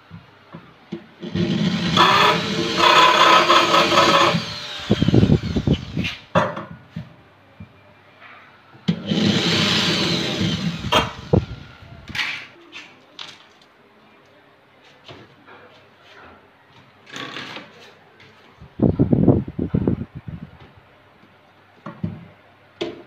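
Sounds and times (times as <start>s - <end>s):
electric drill drilling: 1.2s - 6.2s, 9.0s - 11.6s.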